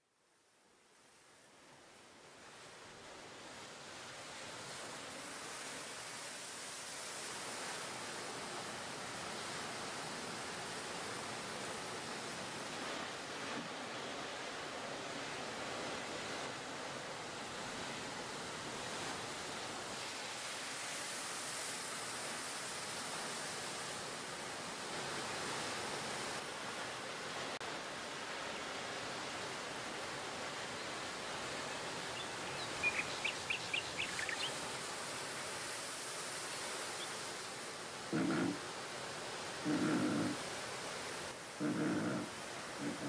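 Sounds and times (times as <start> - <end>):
steady rushing ambient noise: 41.0 - 43.0.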